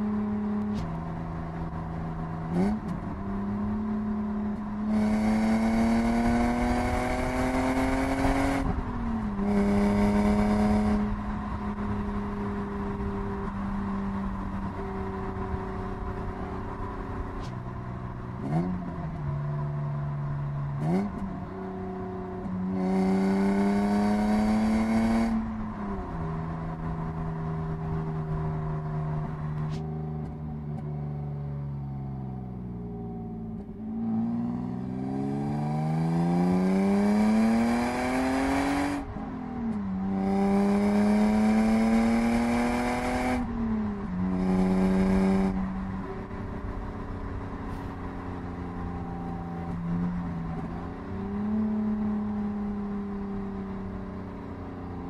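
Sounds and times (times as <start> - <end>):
car engine revving: 0.0 - 30.9, 33.2 - 48.7.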